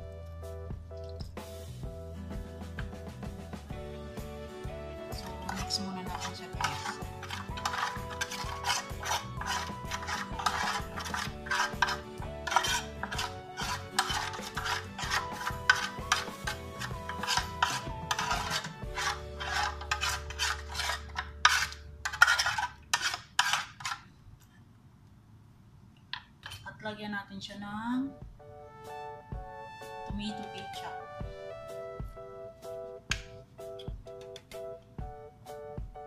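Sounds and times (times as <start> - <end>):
metal spoon scraping metal pan: 5.1 - 24.1.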